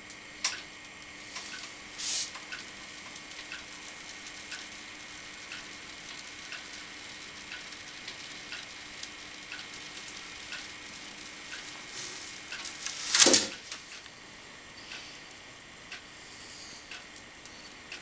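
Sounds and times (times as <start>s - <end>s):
soft ticking: 0.1s - 14.2s, 14.8s - 18.0s
foam cutter humming: 1.1s - 14.2s.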